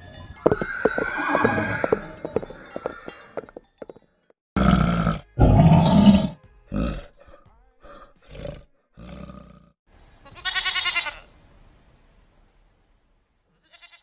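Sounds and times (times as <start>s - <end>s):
bear grunting: 4.6s - 9.8s
goat bleating: 10.2s - 11.3s, 13.5s - 14.0s.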